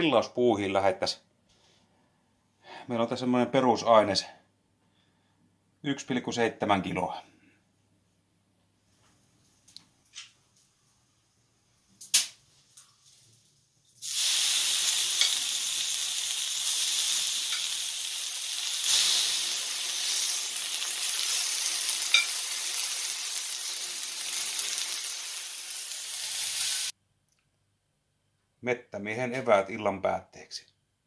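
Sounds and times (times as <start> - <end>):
steaks sizzling on griddle pan: 14.0 - 26.9
tongs clicking: 22.1 - 22.4.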